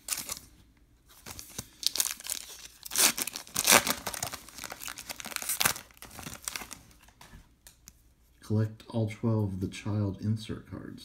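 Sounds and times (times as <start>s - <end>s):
plastic wrapper tearing and crinkling: 0.0s - 0.4s, 1.2s - 7.2s.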